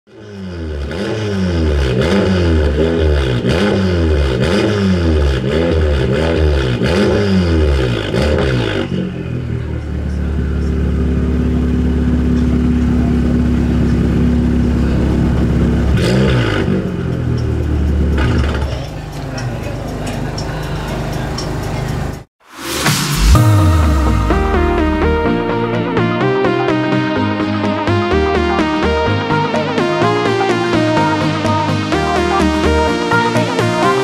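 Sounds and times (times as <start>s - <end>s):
car engine revving and idling: 0.1s - 22.3s.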